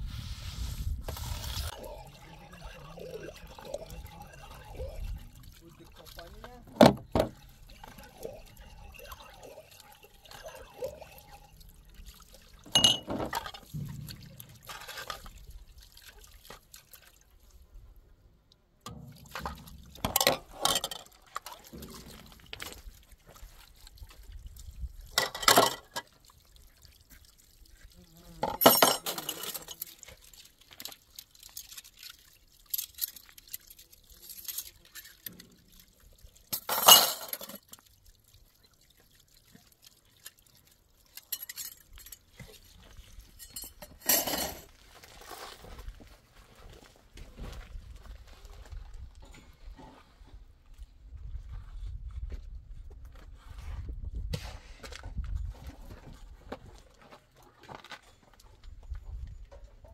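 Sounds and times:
water splashing in basin: 1.3s - 17.6s
metal pots and plates clinking: 1.7s - 5.5s, 6.6s - 15.4s, 18.9s - 22.7s, 25.2s - 26.0s, 28.4s - 29.9s, 36.5s - 37.7s, 43.3s - 44.7s.

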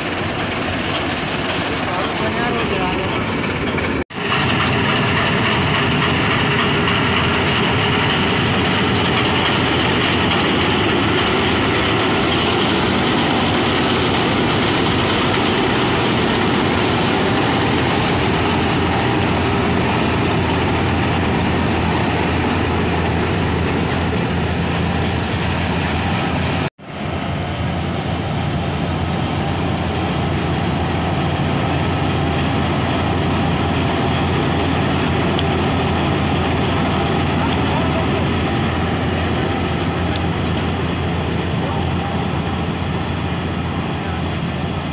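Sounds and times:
combine harvester running: 0.0s - 44.9s.

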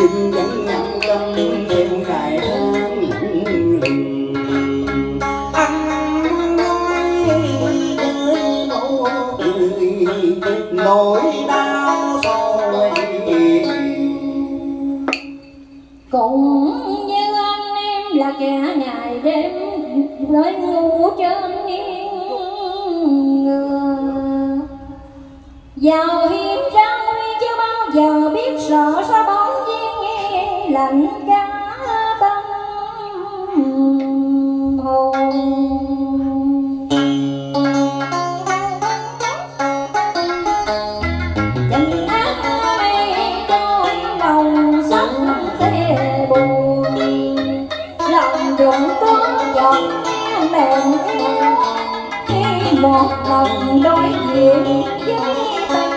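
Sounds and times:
guitar and plucked string instrument: 0.0s - 16.1s, 34.8s - 55.9s.

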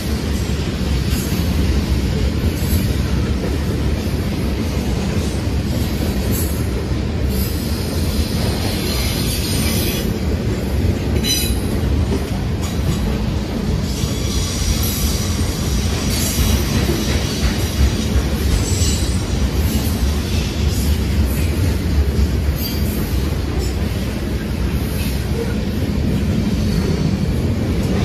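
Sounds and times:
train wheels rumbling on rail: 0.0s - 28.0s.

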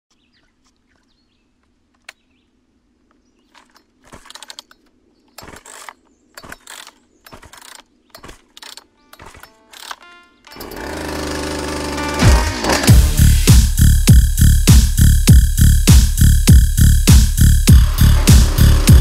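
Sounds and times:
mechanical ratcheting bursts: 5.4s - 13.0s.

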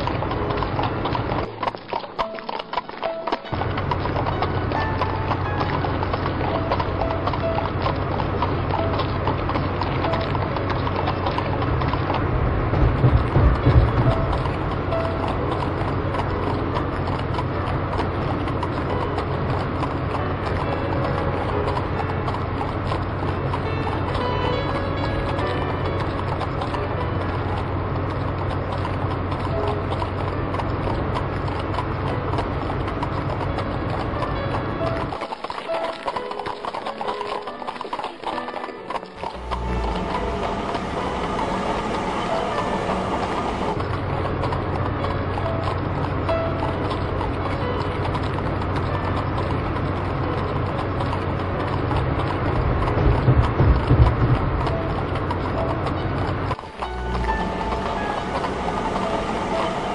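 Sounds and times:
horse hooves clip-clopping: 0.0s - 59.9s
steady low rumble: 7.1s - 19.0s, 39.3s - 45.2s, 52.0s - 59.9s
steady low hum: 39.2s - 47.3s, 54.5s - 59.9s.

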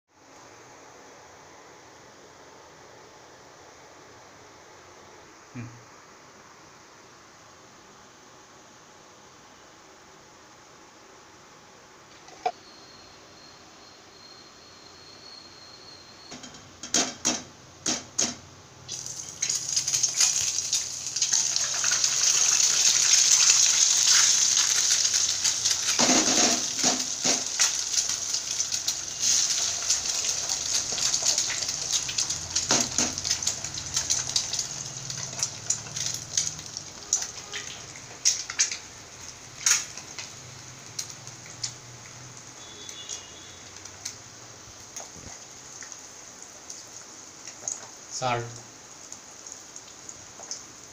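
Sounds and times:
eggs sizzling in hot oil: 16.9s - 50.9s
eggs cracked on pan: 37.2s - 38.8s, 39.6s - 40.3s.

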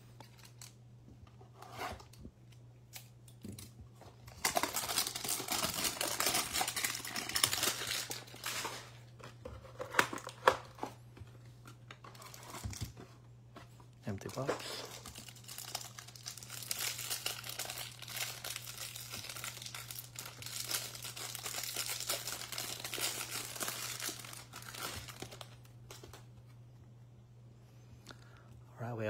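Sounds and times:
packaging tearing and crinkling: 2.9s - 11.0s, 12.0s - 13.0s, 14.3s - 26.2s.

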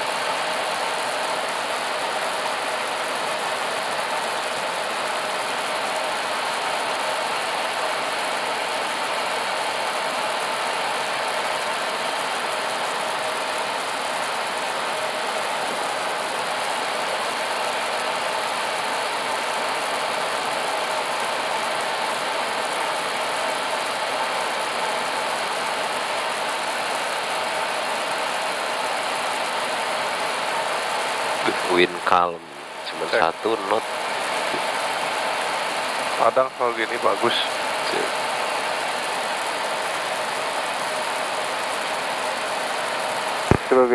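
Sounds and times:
jet engines humming: 28.7s - 43.9s.

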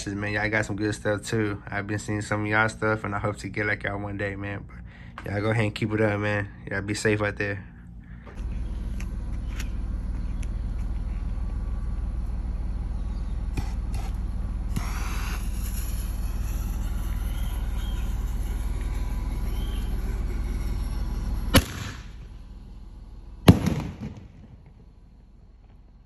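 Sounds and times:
fuse hissing: 13.1s - 23.8s
firework launch report: 14.5s - 22.6s, 23.4s - 26.0s
firework shell bang echoing: 21.5s - 22.3s, 23.4s - 24.8s.

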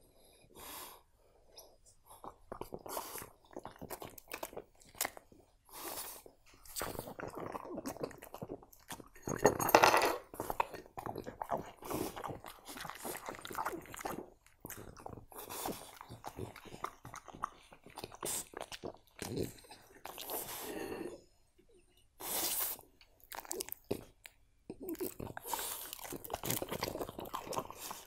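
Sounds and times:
dog chewing and crunching: 2.1s - 5.4s, 6.0s - 20.8s, 23.2s - 24.2s, 24.8s - 28.0s.

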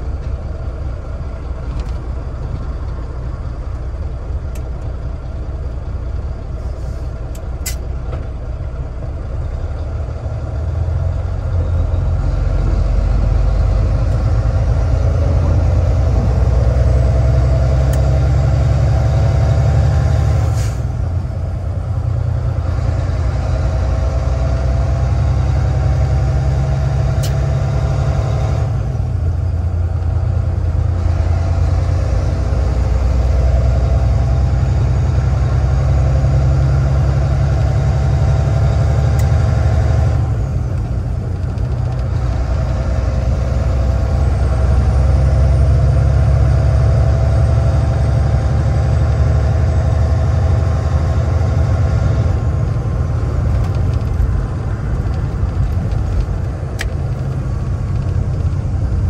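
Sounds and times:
truck engine accelerating: 0.0s - 59.0s
gear shift engine drop: 52.2s - 59.0s.

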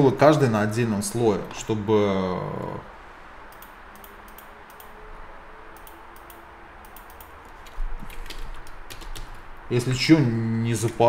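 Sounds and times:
low room hum: 0.0s - 11.0s
keyboard keys clicking: 5.8s - 9.4s.

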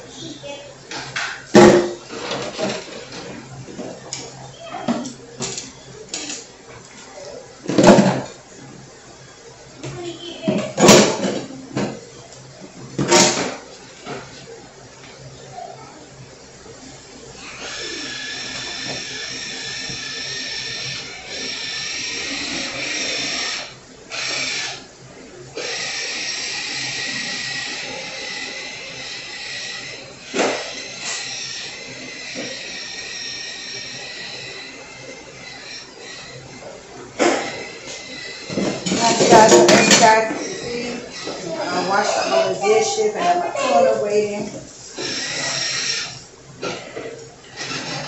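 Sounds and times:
dishes and utensils clinking: 37.2s - 40.6s.

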